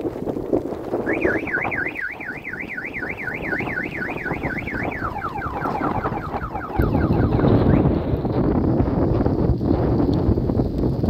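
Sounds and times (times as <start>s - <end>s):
wind noise: 0.0s - 11.0s
falling electronic chirps: 1.1s - 7.8s
warbling electronic alarm: 1.1s - 8.1s.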